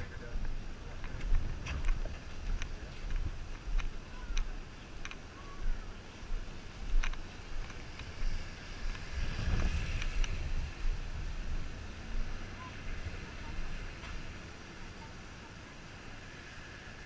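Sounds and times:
wind on microphone: 0.0 - 15.0
rushing noise: 0.0 - 17.0
footsteps on pavement: 0.2 - 12.3.

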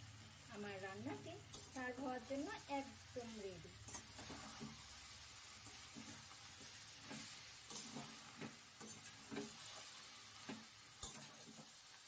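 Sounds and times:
food sizzling in a pan: 0.0 - 12.0
spatula scraping a pan: 3.8 - 11.8.

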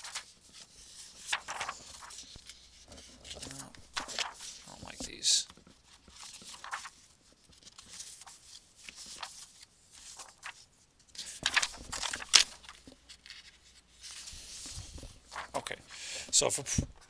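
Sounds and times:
paper rustling and sliding: 0.0 - 17.0.

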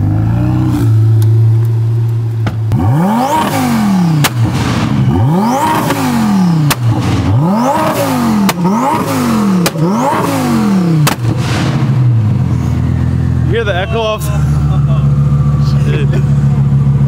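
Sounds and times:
sports car engine revving: 0.0 - 17.0
exhaust backfire cracks: 0.7 - 12.8.

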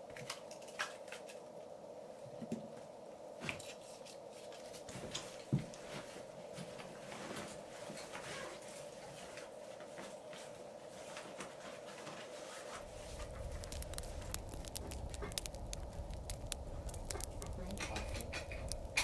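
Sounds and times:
firewood knocking and rustling: 12.8 - 19.0
low rumble: 12.8 - 19.0.

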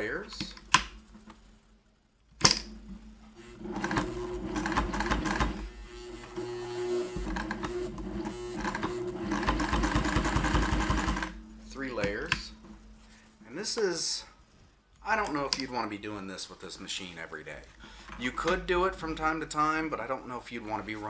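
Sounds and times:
sewing machine stitching: 3.4 - 11.4.

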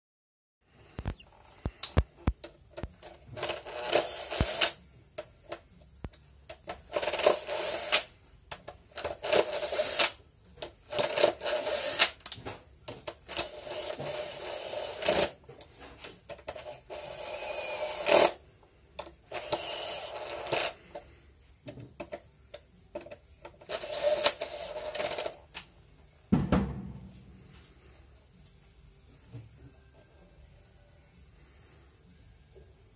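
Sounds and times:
screws and plastic rattling: 1.8 - 4.8, 6.5 - 8.1, 8.9 - 15.4, 22.9 - 25.4
cordless drill motor whirring: 3.4 - 4.8, 7.0 - 8.1, 10.9 - 12.2, 16.6 - 18.4, 19.3 - 20.8, 23.6 - 25.4
low thump: 26.3 - 27.3.

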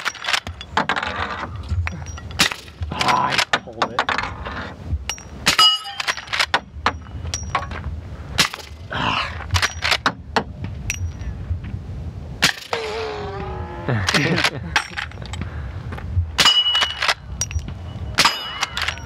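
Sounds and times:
bullets clanging on steel targets: 1.8 - 4.2, 5.1 - 7.8, 9.6 - 10.2, 10.9 - 11.3, 16.4 - 19.0.

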